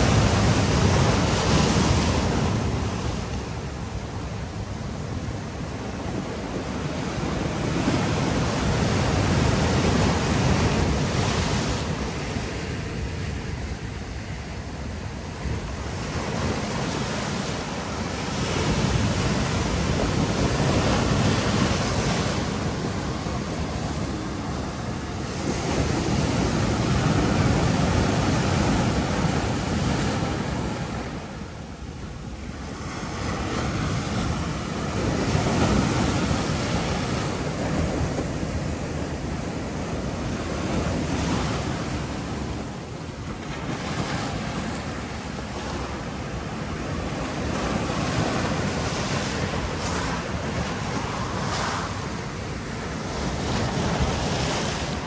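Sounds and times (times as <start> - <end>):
surf breaking on rocks: 43.3 - 55.0.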